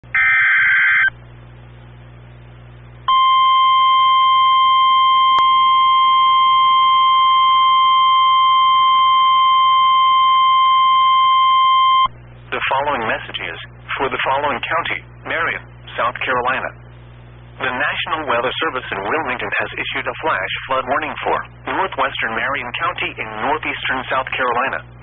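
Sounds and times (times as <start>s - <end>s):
piercing warning alarm tone: 0.1s - 1.1s, 3.1s - 12.1s.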